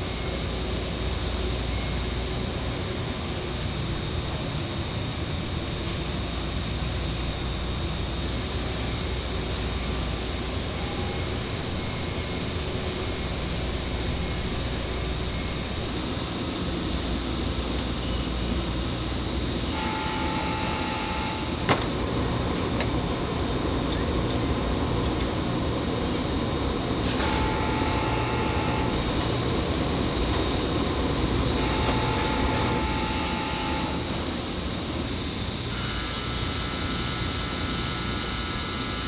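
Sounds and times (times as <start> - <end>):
factory machinery noise: 0.0 - 39.0
whining machine tone: 9.7 - 22.0, 26.9 - 39.0.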